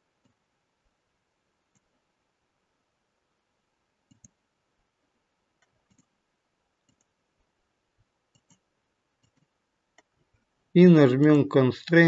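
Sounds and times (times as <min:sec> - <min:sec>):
computer mouse clicks: 0:01.7 - 0:02.0, 0:04.0 - 0:04.4, 0:05.6 - 0:06.2, 0:06.8 - 0:07.2, 0:08.3 - 0:10.5.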